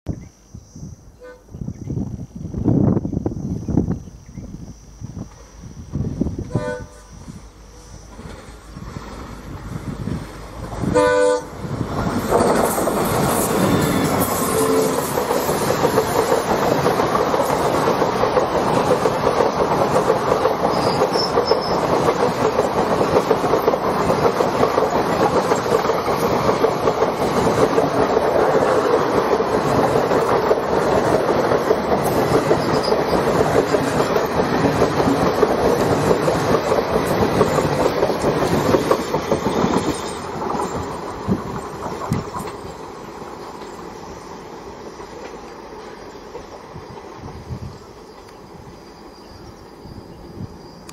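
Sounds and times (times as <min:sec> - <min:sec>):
train rumbling past: 0:00.8 - 0:50.9
wheels clacking over rail joints: 0:08.1 - 0:44.0.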